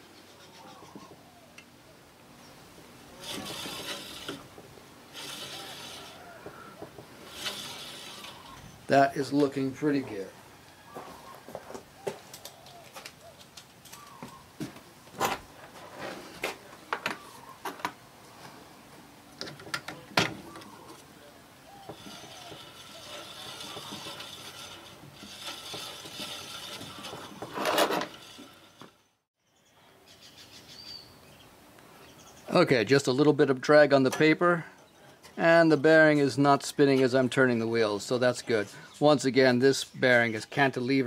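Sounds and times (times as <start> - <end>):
bandsaw wheels whirring: 3.1 - 9.8, 21.6 - 29.2.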